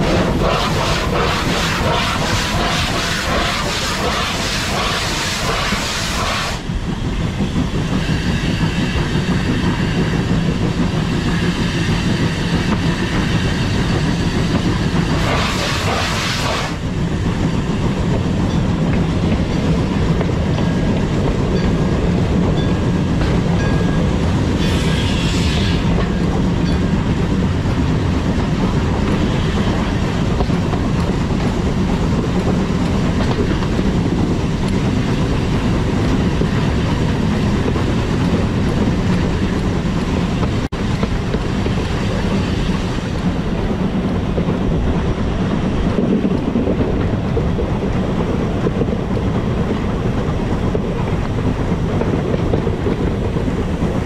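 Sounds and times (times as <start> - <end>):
steam hiss: 0.0 - 6.8, 11.1 - 16.9, 24.5 - 26.0
train rumbling on track: 0.0 - 54.0.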